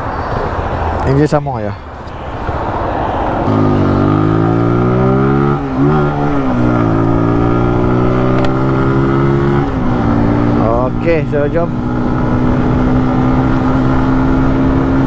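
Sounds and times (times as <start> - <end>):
motorcycle engine accelerating: 3.4 - 15.0.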